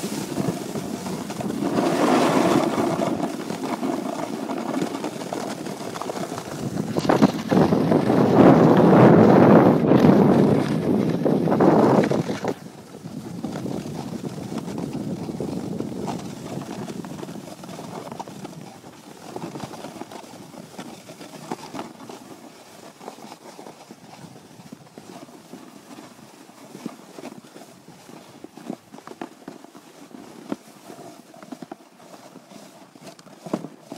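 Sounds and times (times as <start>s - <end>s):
wind buffeting microphone: 0.0s - 18.8s
rustle of movement: 0.0s - 33.9s
soft crunches on snow: 0.0s - 33.9s.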